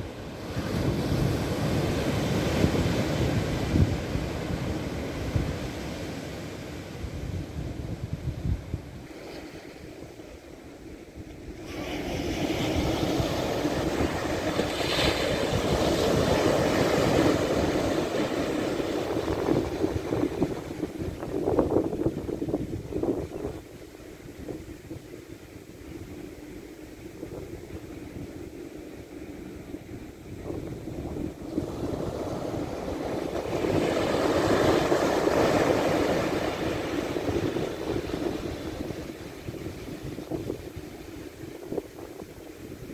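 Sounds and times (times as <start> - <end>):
waves breaking on sandy beach: 0.0 - 42.9
wave breaking on beach: 11.6 - 21.9, 31.1 - 41.4.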